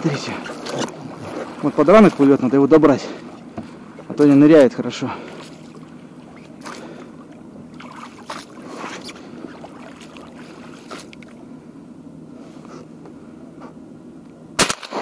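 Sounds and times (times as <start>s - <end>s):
water splashing against boat hull: 0.0s - 4.6s, 5.2s - 11.4s
steady low hum: 0.0s - 15.0s.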